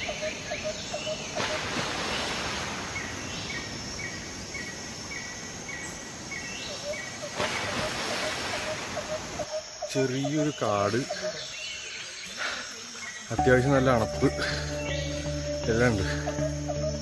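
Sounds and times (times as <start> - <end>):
high repeating chirp: 13.3 - 17.0.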